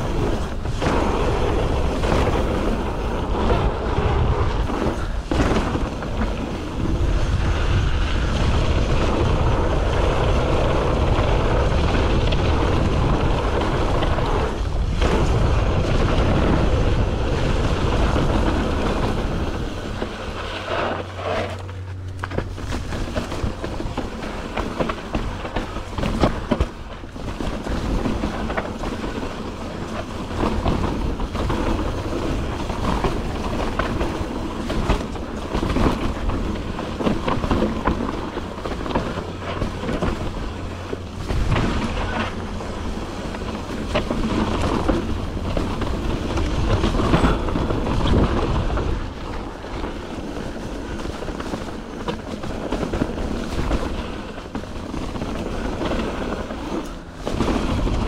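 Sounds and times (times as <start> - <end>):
bike rattling and knocking: 0.0 - 58.0
bike tyres rumbling on dirt: 0.0 - 58.0.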